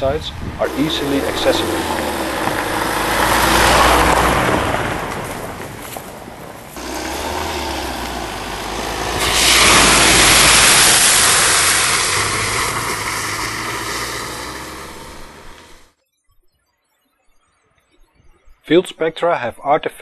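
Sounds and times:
van engine running low: 0.0 - 15.9
tyres splashing through puddle: 0.6 - 15.9.

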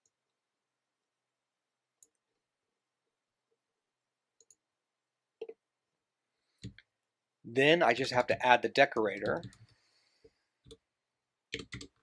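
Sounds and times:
computer keyboard clicks: 11.5 - 12.0.

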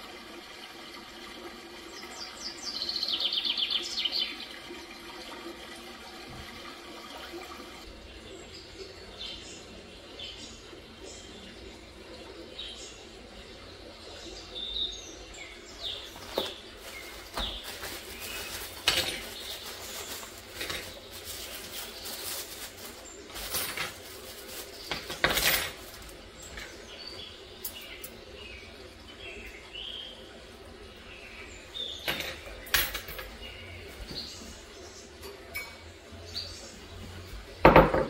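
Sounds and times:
faint birds chirping: 7.9 - 23.7, 24.3 - 38.0
cups and spoons clinking: 16.1 - 21.8, 22.4 - 27.0, 31.8 - 33.5, 35.2 - 35.9.

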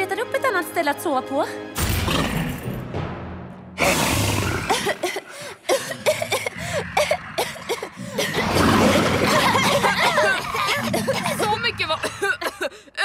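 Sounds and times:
cartoon pony coughing: 4.5 - 12.7.

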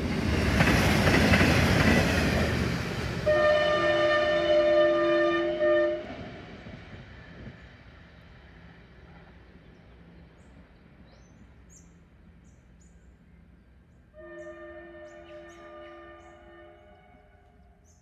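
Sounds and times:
railcar rumble: 0.0 - 18.0
train horn: 3.2 - 6.4, 14.1 - 17.7.

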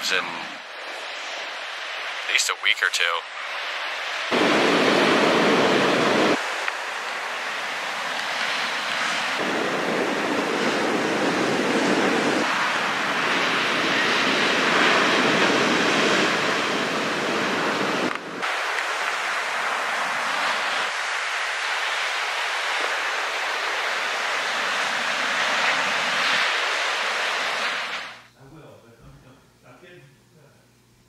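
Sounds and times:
waves breaking on sandy beach: 3.0 - 28.2
wind on microphone: 3.6 - 18.7.

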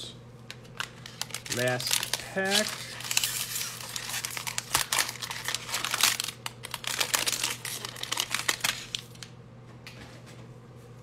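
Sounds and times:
foil wrapper tearing and crinkling: 0.6 - 9.3.

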